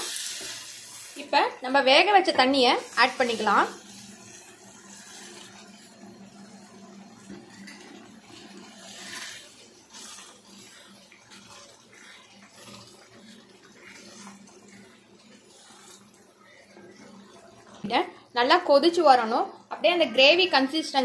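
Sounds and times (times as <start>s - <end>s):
spatula stirring watery gravy: 2.4s - 18.3s.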